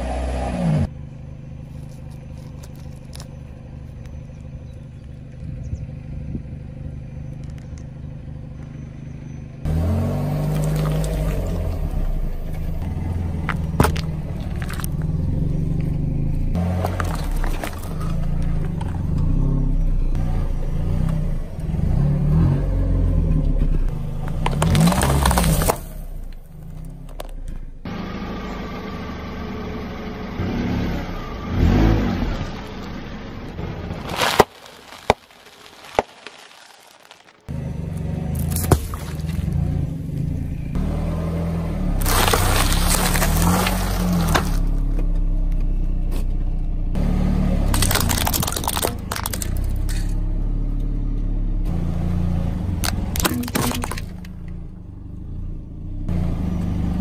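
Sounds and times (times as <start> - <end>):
car engine running: 0.0 - 22.2, 37.0 - 57.0
tyre crushing objects: 13.4 - 15.2, 16.6 - 18.2, 24.3 - 26.0, 34.0 - 37.5, 38.4 - 39.5, 42.0 - 44.8, 47.7 - 50.1, 52.8 - 54.3
crackle of candy shells: 34.0 - 37.5, 42.0 - 44.6, 47.7 - 50.1.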